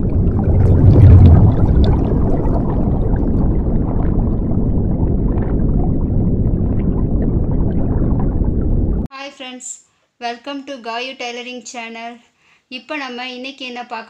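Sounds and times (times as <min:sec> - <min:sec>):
underwater bubbling water: 0:00.0 - 0:09.1.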